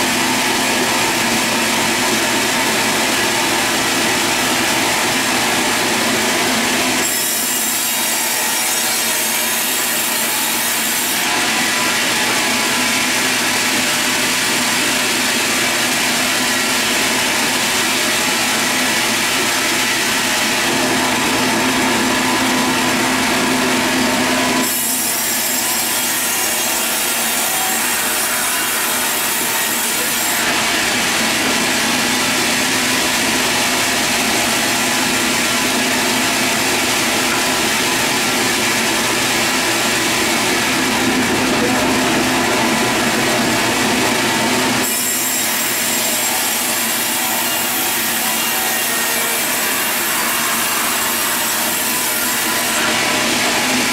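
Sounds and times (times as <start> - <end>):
band saw whine and hiss: 0.2 - 53.9.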